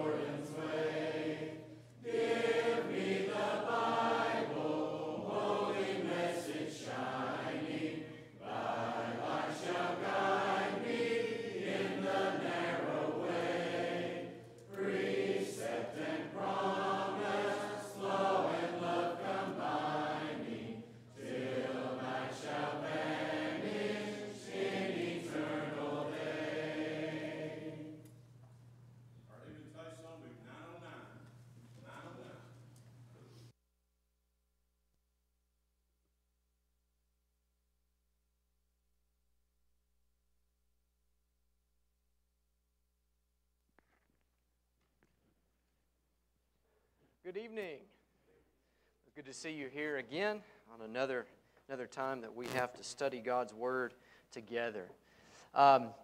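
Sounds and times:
congregation singing a hymn: 0.0s - 28.2s.

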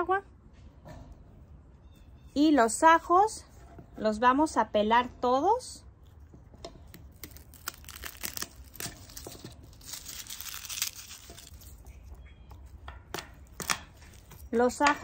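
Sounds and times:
garlic skins crackling: 6.9s - 12.1s.

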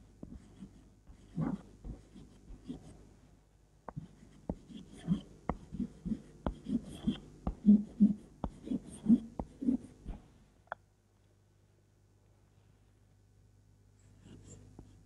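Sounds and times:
chalk tapping and scraping on blackboard: 0.2s - 3.0s, 3.9s - 9.9s.

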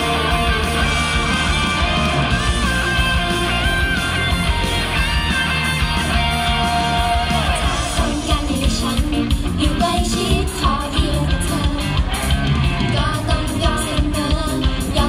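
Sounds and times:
pop song over speakers: 0.0s - 15.0s
women singing: 7.3s - 12.2s, 12.9s - 15.0s.

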